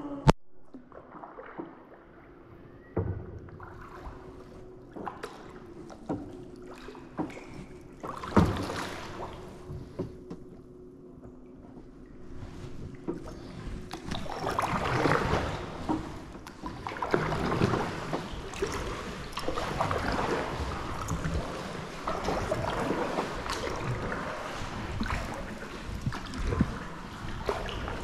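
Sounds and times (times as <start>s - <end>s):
water dripping from paddle: 0.7s - 10.4s, 12.5s - 28.0s
kayak paddle splashing: 0.7s - 28.0s.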